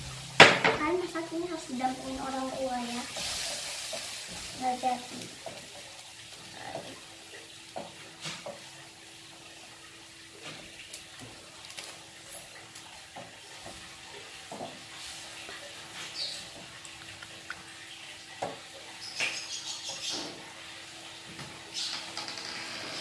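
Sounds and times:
simmering milk hiss: 0.0 - 18.3
spatula scraping frying pan: 2.0 - 5.4.

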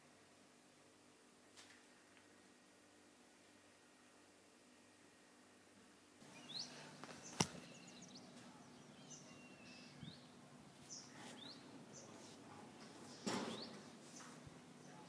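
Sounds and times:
bird chirps: 6.2 - 12.2.

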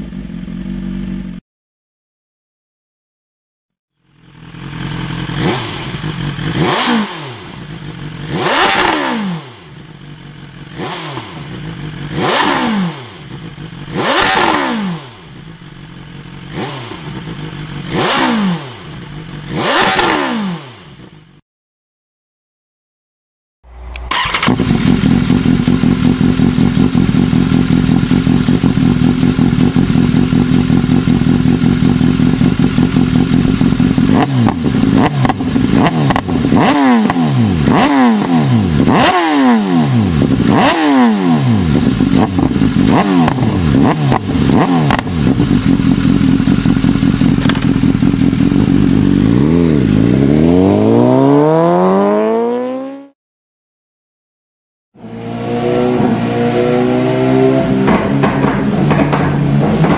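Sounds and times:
motorcycle engine idling: 0.0 - 1.4, 3.9 - 6.8, 7.4 - 8.4, 9.5 - 12.4, 13.2 - 14.2, 15.0 - 18.2, 18.8 - 19.6, 24.1 - 36.6, 41.7 - 50.0
motorcycle engine revving: 0.0 - 1.4, 3.9 - 21.4, 23.7 - 53.2, 55.0 - 59.9.

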